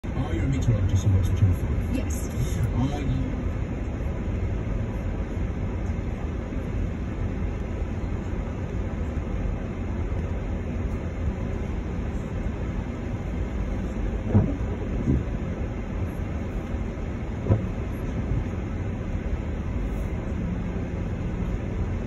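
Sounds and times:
car cabin rumble on wet road: 0.1 - 22.0
windscreen wiper thuds: 14.2 - 15.6, 17.3 - 18.6.

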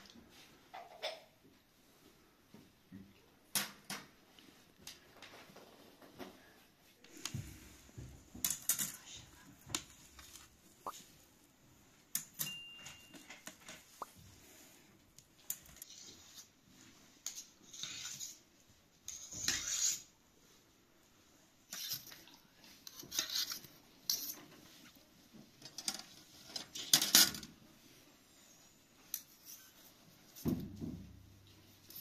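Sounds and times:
skewers scraping a plate: 17.3 - 18.5, 19.1 - 20.1.

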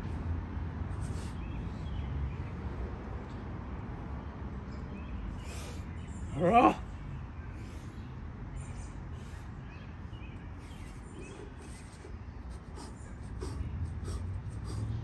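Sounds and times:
man breathing hard: 7.4 - 15.0.

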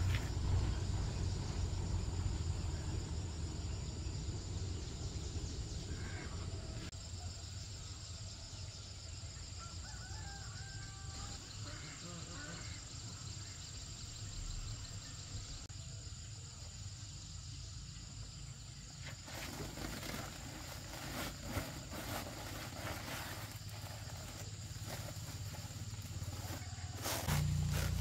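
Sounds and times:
low rumble: 0.0 - 6.9, 27.2 - 28.0
insect drone: 0.0 - 28.0
plastic sack rustling: 19.2 - 28.0.

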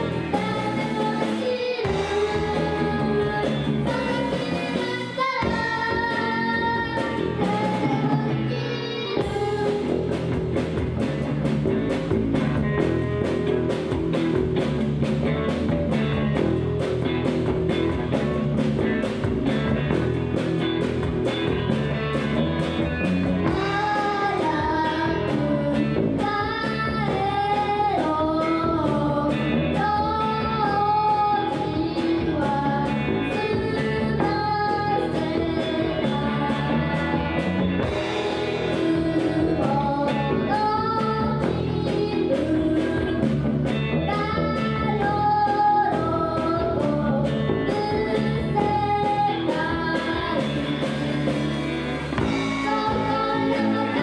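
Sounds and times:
woman singing: 0.0 - 10.3, 23.4 - 51.2, 52.2 - 54.0
rock band playing live: 0.0 - 54.0.

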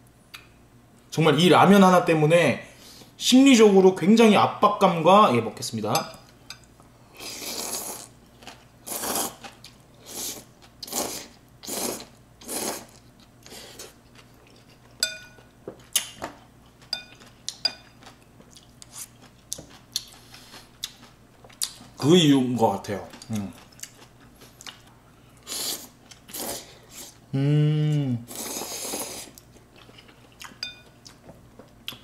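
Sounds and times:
noodles slurped: 7.2 - 8.1, 28.3 - 29.4
utensils clinking on glass bowl: 15.0 - 15.5.

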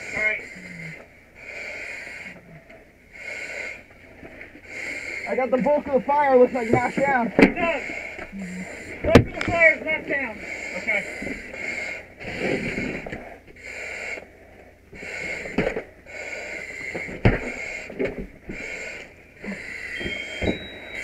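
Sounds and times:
breathing hard through a mask: 0.0 - 9.5, 10.1 - 21.0
air regulator hissing: 18.5 - 21.0.

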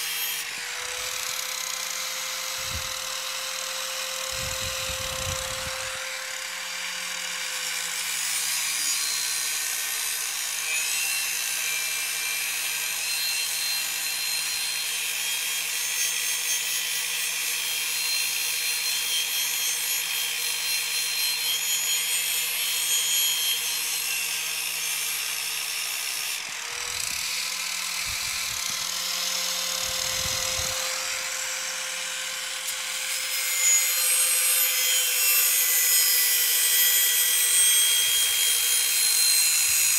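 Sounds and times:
angle grinder motor whine: 0.0 - 15.9, 21.8 - 39.9.

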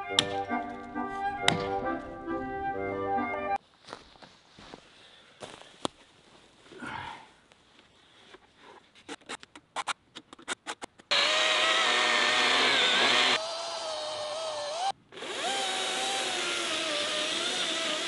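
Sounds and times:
chainsaw cutting wood: 11.1 - 18.0.

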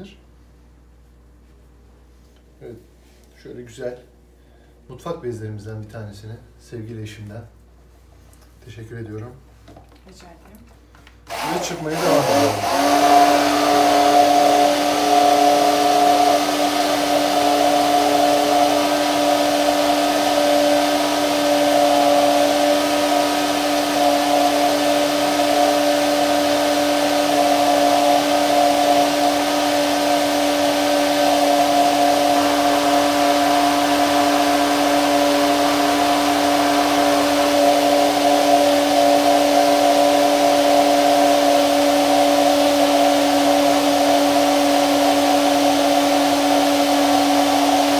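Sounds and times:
immersion blender motor whine: 11.2 - 47.9.

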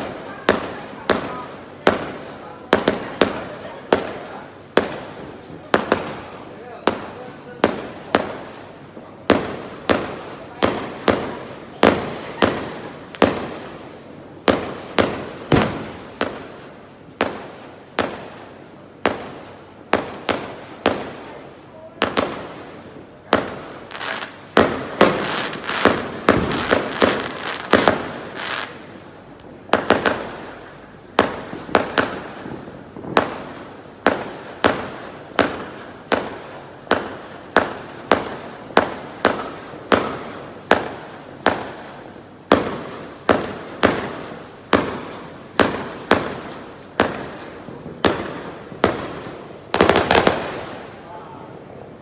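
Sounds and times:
fireworks bangs: 0.0 - 52.0.

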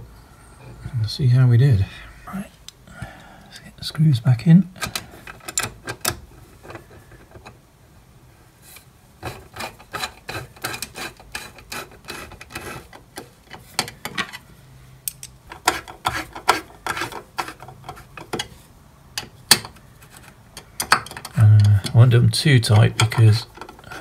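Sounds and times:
hex key clicking and scraping: 4.8 - 6.8.

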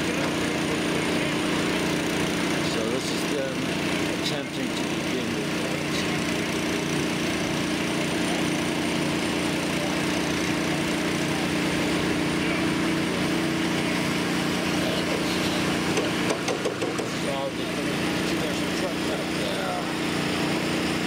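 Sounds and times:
small gasoline engine running: 0.0 - 21.0.

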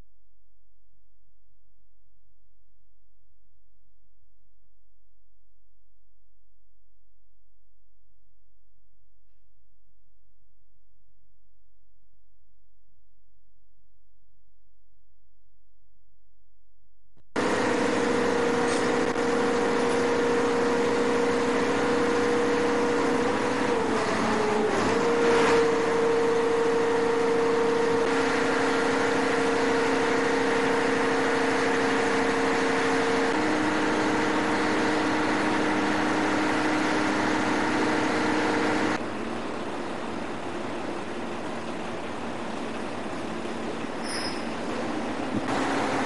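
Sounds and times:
boat engine droning: 17.4 - 46.0.

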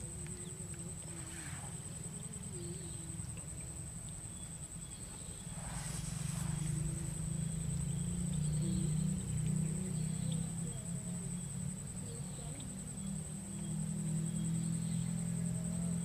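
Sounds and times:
high-pitched insect drone: 4.6 - 16.0
low rumble: 5.4 - 10.5.

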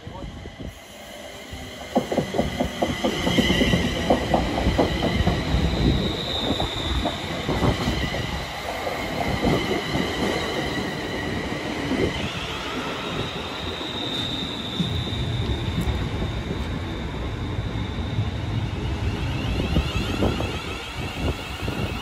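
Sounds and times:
train wheels squealing: 0.1 - 22.0
train wheels clattering on rails: 1.6 - 12.3.

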